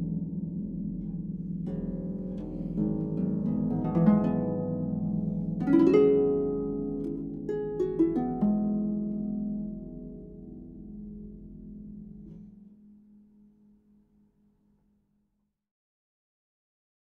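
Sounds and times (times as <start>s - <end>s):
harp playing: 0.0s - 13.7s.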